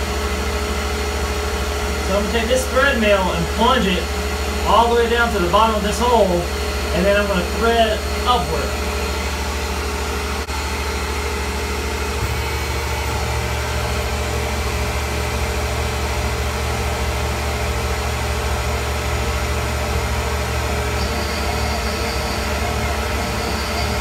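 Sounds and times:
milling machine hum: 0.0s - 24.0s
faint high whine: 2.0s - 16.0s, 20.2s - 24.0s.

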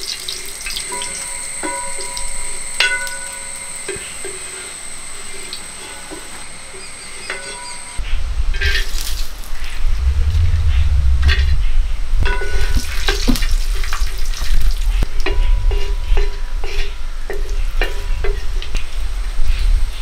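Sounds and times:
nuts frying in a pan: 0.0s - 7.2s
steady low rumble: 8.2s - 15.1s.

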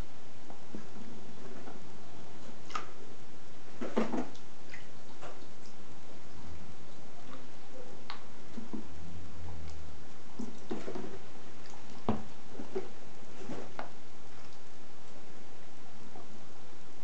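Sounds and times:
soft water splashing: 2.4s - 14.8s.

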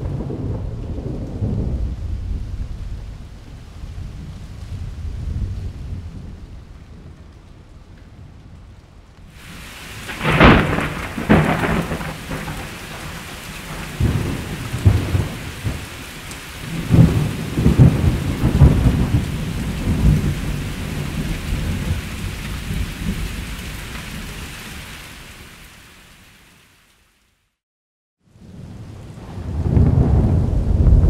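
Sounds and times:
sharp thunderclap: 0.0s - 3.3s, 9.5s - 16.0s, 16.6s - 23.5s, 29.1s - 31.0s
rolling thunder: 0.0s - 7.3s, 9.4s - 24.3s, 28.4s - 31.0s
steady rain: 0.0s - 27.6s, 28.2s - 31.0s.

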